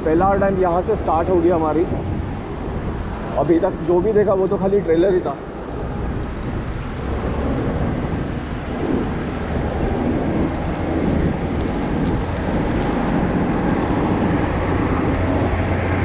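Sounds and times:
steady low rumble: 0.0 - 16.0
wind noise on microphone: 0.0 - 16.0.

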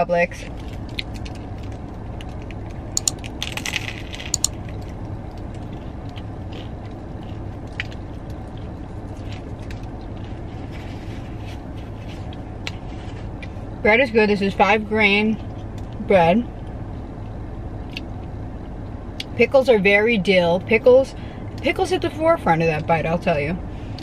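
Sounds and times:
steady low hum: 0.0 - 24.0
close-up chewing: 0.5 - 13.6.

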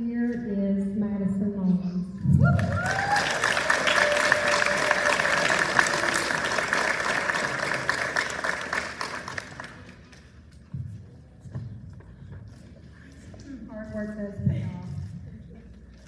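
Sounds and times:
person whooping: 2.4 - 6.3
audience applauding: 2.5 - 10.2.

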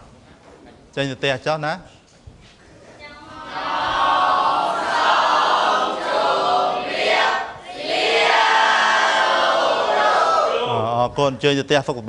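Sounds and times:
students reciting in unison: 3.3 - 10.7.

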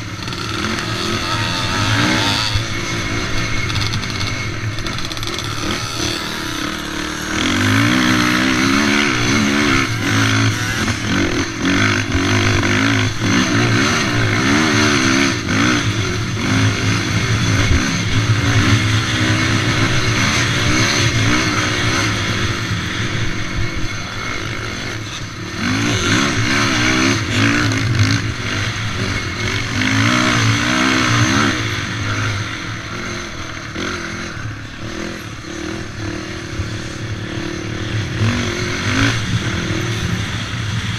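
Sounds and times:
quad engine revving: 0.0 - 40.9.

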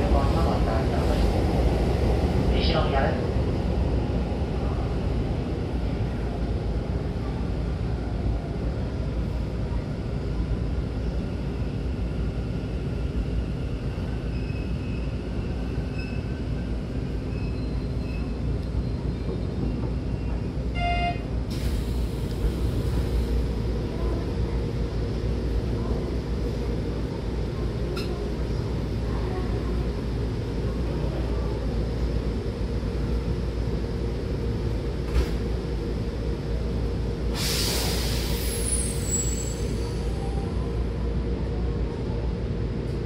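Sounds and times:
train rumbling: 0.0 - 43.0
short beep: 20.8 - 21.2
door air hiss: 37.4 - 38.6.

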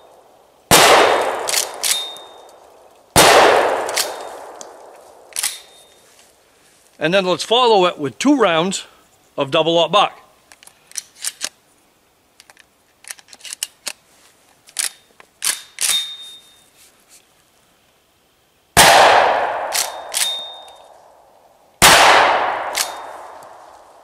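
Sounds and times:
shotgun shots echoing: 0.7 - 2.4, 3.2 - 5.8, 18.8 - 20.7, 21.8 - 23.6
shotgun slide racking: 5.3 - 5.8
small metallic clicks: 5.3 - 6.0, 10.5 - 11.6, 12.3 - 16.4, 19.7 - 20.9.

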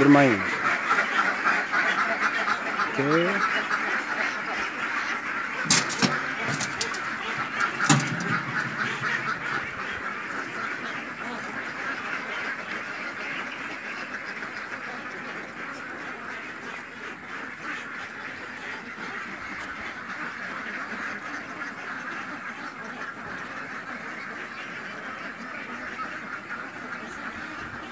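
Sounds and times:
ducks quacking: 0.0 - 27.9
sharp knocks: 5.7 - 10.0.

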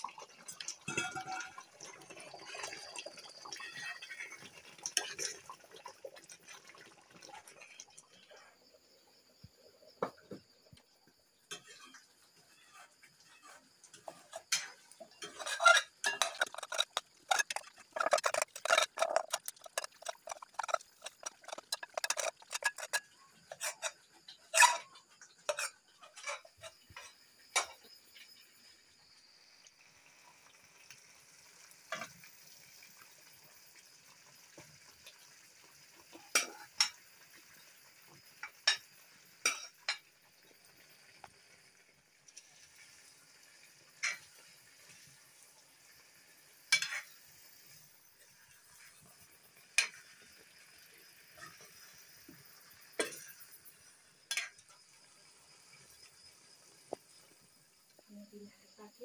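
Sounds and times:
faint sizzle: 0.0 - 59.0
metal spatula scraping frying pan: 11.5 - 27.7, 46.7 - 47.2, 54.3 - 54.6.

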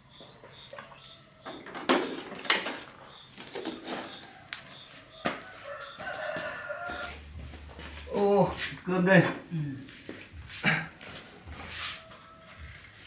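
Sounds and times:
rooster crowing: 4.1 - 7.4, 11.2 - 13.0.

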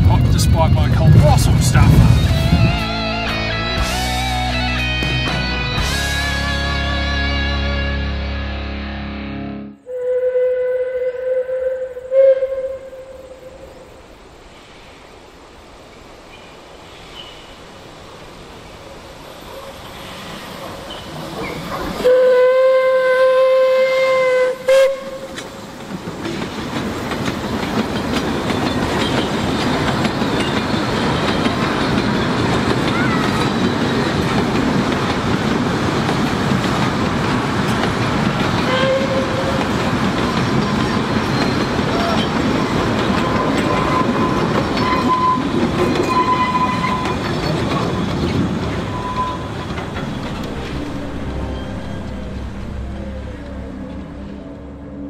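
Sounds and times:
steam train passing: 0.0 - 7.1, 10.0 - 55.0
steam locomotive whistle: 9.8 - 13.6, 22.0 - 25.5, 38.6 - 42.3, 43.2 - 47.2, 48.8 - 54.7.

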